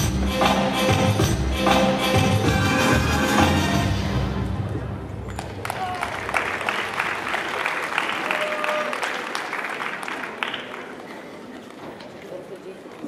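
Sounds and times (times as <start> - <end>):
crowd applauding: 5.2 - 11.6
shout from crowd: 8.2 - 9.2.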